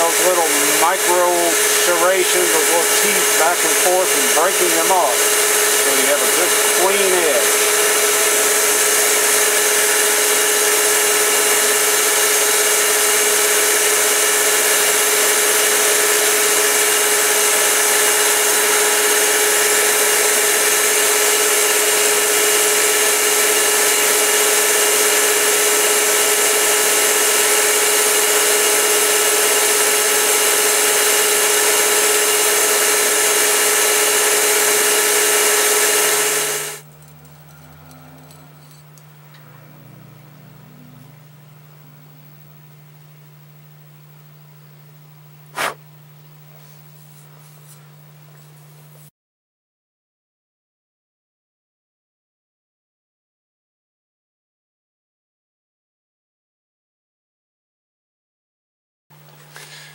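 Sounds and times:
belt grinder whine: 0.0 - 45.9
knife edge stropped on belt: 45.6 - 45.8.

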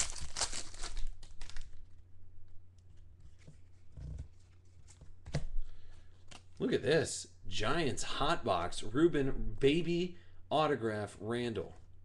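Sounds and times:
cards clicking and rustling: 0.0 - 1.9
foil wrapper crinkling and tearing: 0.0 - 2.0.

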